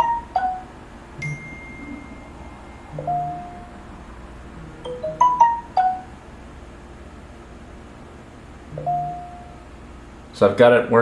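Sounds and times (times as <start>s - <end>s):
smartphone notification chimes: 1.2s - 3.8s, 4.8s - 6.1s, 8.8s - 9.6s.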